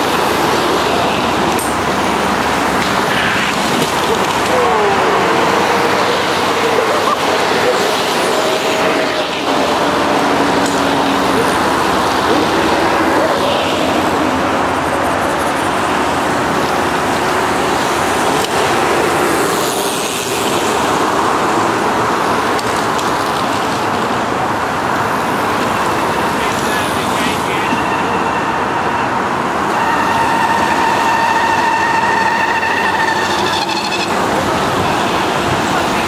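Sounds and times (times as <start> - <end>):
bicycle tyres hissing on wet road: 15.1 - 28.6.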